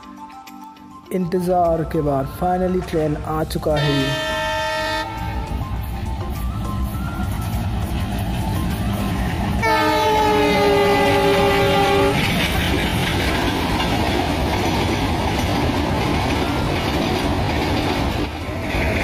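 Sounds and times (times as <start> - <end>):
locomotive horn: 3.7 - 5.6, 9.6 - 12.3
freight wagons clattering past: 10.6 - 19.0.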